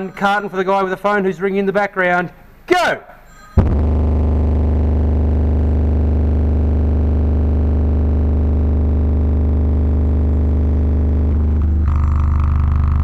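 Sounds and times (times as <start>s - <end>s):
subwoofer harsh buzz: 3.6s - 13.0s.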